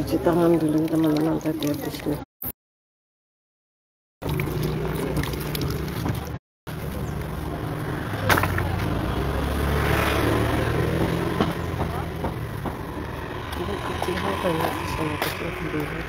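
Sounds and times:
engine humming: 4.2s - 16.0s.

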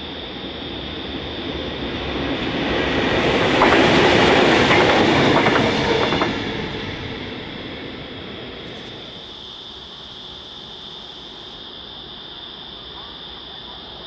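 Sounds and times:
diesel locomotive engines passing: 0.0s - 11.8s
wheels clicking over rail joints: 2.4s - 9.0s.

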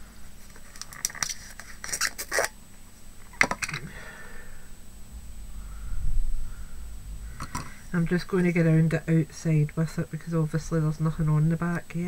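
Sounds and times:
low rumble of handling: 2.7s - 11.4s.

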